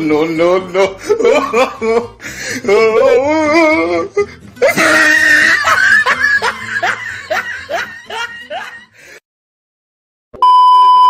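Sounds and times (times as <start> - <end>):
person laughing: 0.8 - 9.1.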